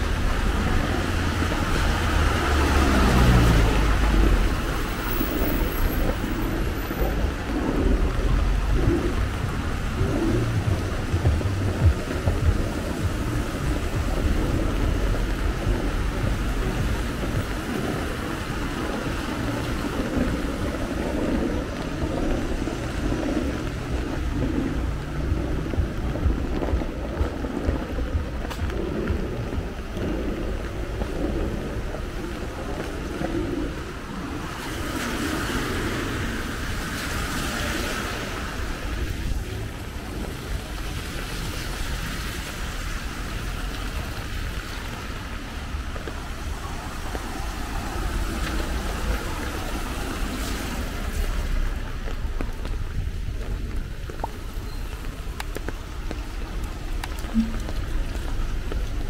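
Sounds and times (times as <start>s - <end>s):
light rain: 0.0s - 59.0s
traffic noise: 0.0s - 59.0s
tyres on a wet road: 0.0s - 59.0s.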